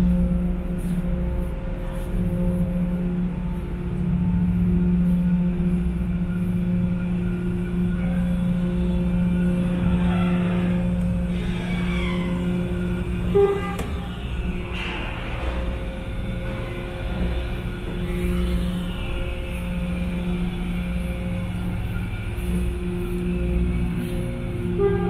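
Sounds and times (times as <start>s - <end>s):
ship engines humming: 0.0s - 25.0s.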